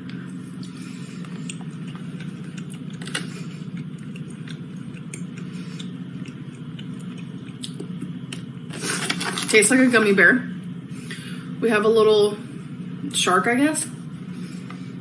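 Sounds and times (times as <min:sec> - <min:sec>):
chewing gummy candy: 0:00.0 - 0:09.6
steady low hum: 0:00.0 - 0:15.0
plastic bag crinkling: 0:08.8 - 0:09.7.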